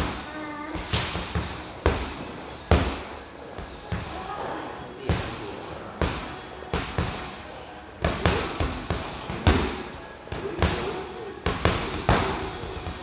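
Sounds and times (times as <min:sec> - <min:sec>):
gloves punching heavy bag: 0:00.8 - 0:04.4, 0:08.0 - 0:13.0.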